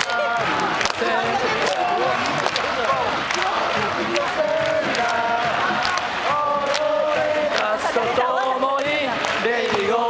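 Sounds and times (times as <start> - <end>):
crowd singing a chant: 0.0 - 10.0.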